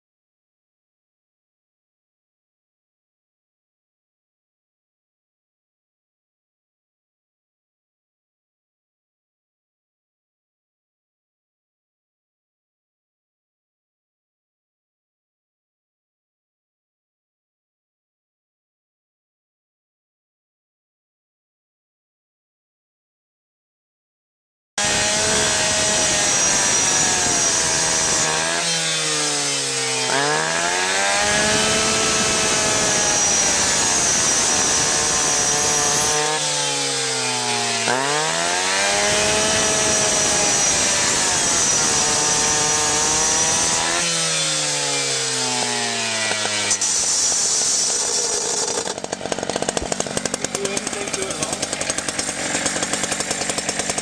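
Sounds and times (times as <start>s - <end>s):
rescue saw engine revving: 24.8s - 54.0s
saw cutting metal whine: 24.8s - 54.0s.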